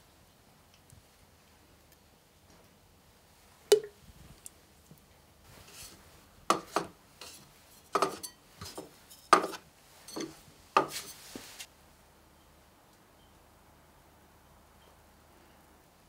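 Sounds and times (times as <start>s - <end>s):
ceramic dishes clinking on wood: 8.0s - 11.0s.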